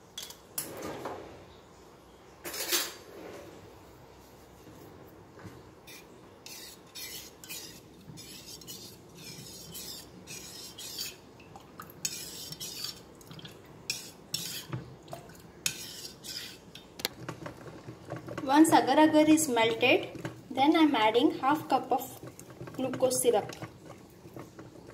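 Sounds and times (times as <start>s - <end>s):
metal spoon scraping steel bowl: 5.9s - 11.2s, 12.0s - 13.1s, 13.9s - 14.8s, 15.6s - 20.4s, 21.0s - 24.9s.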